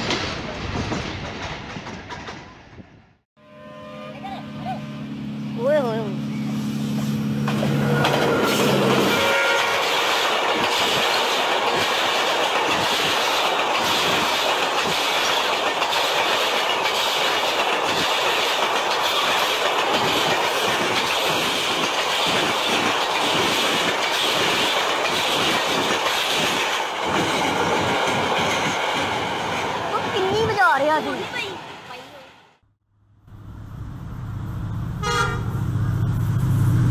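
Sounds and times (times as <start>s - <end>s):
wheels clickety-clack: 0.0s - 2.8s, 7.4s - 31.5s
train wheels rushing on rails: 0.0s - 3.2s, 5.6s - 32.4s
locomotive horn: 3.4s - 5.5s, 7.5s - 10.1s, 35.0s - 35.8s.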